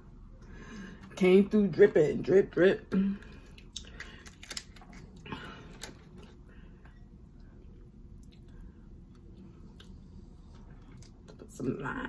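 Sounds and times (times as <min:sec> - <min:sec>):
wet squishes and clicks: 0:03.5 - 0:06.4.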